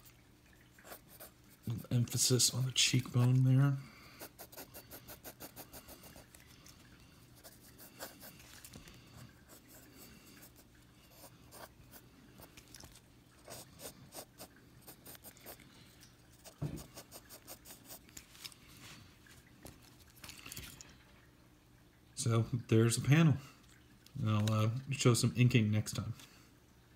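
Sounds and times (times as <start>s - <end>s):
pencil scratching on paper: 4.2s - 6.3s, 7.4s - 8.4s
dull thump: 16.6s - 16.9s.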